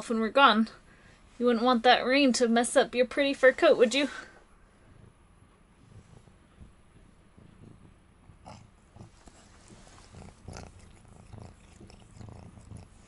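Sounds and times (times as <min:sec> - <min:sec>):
soft low thumps: 0:04.8 - 0:09.1
rustling on towels: 0:09.1 - 0:10.4.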